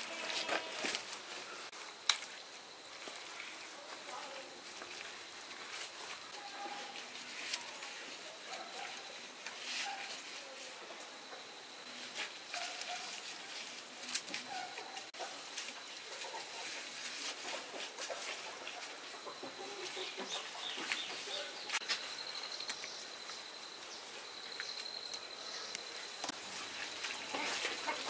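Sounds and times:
chickens clucking: 14.4s - 21.8s, 26.2s - 28.0s.

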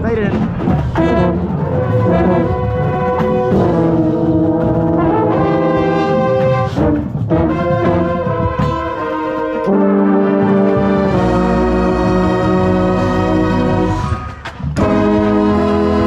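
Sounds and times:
brass section playing chords: 0.9s - 14.2s, 14.8s - 16.0s.

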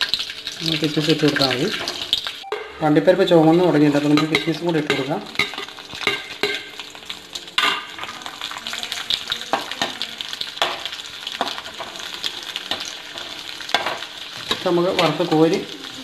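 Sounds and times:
nuts sizzling in hot oil: 0.0s - 16.0s
metal ladle scraping pan: 3.5s - 6.9s.

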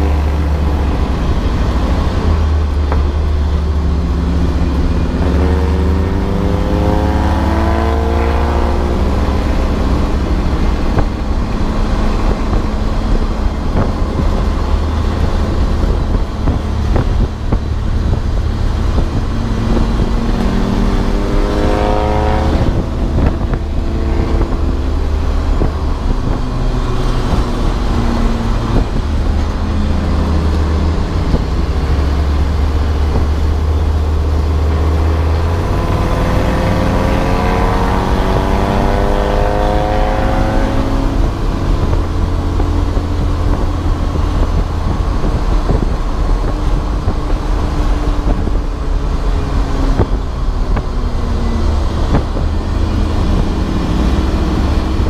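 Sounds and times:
low rumble: 0.0s - 55.0s
race car engine accelerating: 0.0s - 55.0s.

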